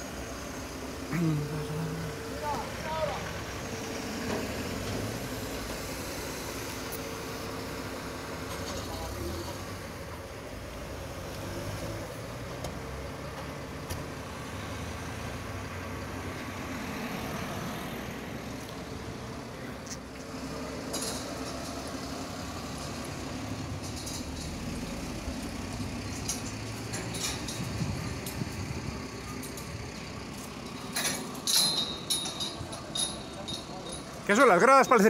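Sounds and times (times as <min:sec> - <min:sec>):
diesel engine running: 0:00.0 - 0:35.0
sharp metallic clinks: 0:30.6 - 0:35.0.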